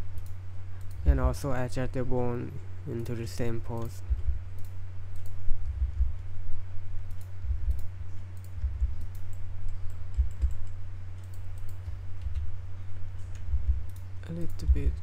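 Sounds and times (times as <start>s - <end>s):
steady low hum: 0.0s - 15.0s
keyboard and mouse clicks: 0.1s - 1.2s, 2.9s - 6.3s, 7.0s - 12.5s, 13.2s - 15.0s.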